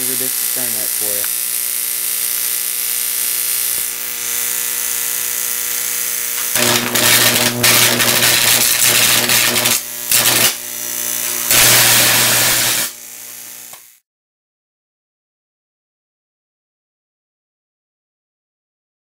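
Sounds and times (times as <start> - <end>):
electrical hum: 0.0 - 13.6
electric arc buzzing: 0.0 - 14.0.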